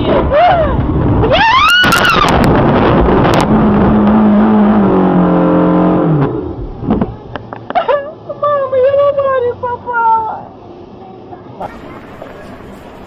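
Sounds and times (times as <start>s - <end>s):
steady drone: 11.6s - 13.0s.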